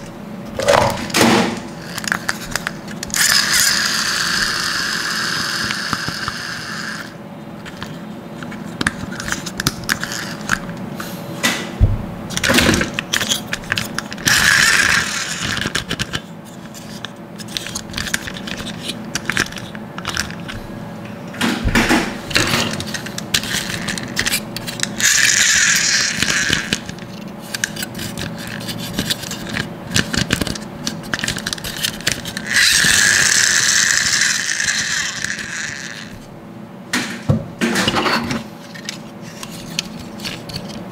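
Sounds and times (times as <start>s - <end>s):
plastic toy parts rattling: 12.3s - 20.6s, 21.9s - 36.3s, 37.8s - 40.8s.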